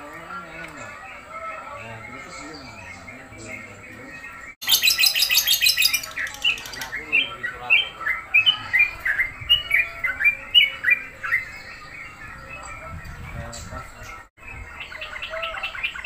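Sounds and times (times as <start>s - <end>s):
bird rattle and chirping song: 4.6s - 7.0s.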